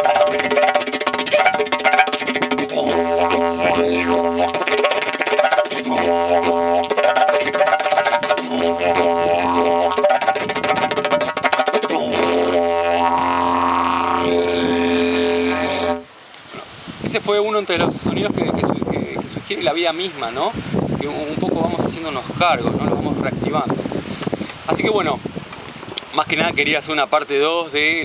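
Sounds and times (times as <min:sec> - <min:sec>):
didgeridoo drone: 0:00.0 - 0:16.1.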